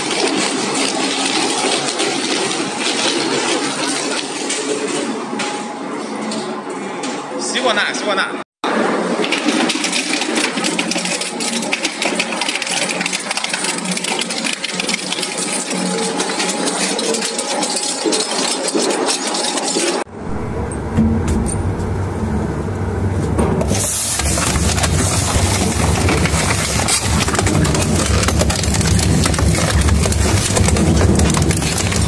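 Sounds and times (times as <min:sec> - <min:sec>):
deep machine rumble: 0:20.1 - 0:32.0
shredder crushing material: 0:23.6 - 0:32.0.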